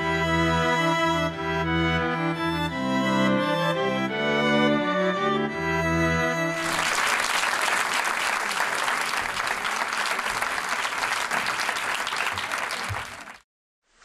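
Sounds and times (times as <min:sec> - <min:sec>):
audience applauding: 0:06.6 - 0:13.4.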